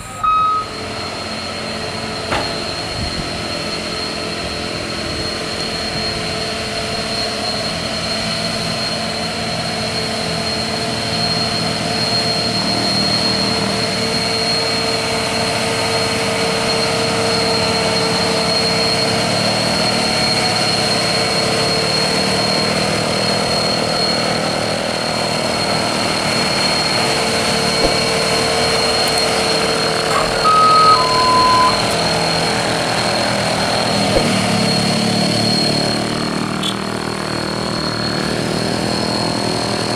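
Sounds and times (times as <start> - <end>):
horn short beeps: 0.0 - 0.7, 27.8 - 34.7
diesel truck engine labouring: 0.0 - 39.9
steady high whine: 0.0 - 39.9.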